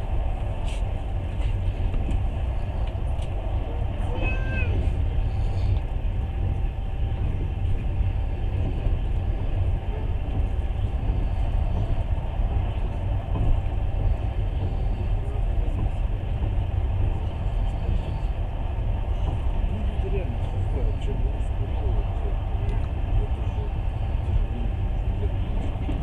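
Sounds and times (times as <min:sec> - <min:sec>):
train wheels rumbling: 0:00.0 - 0:26.0.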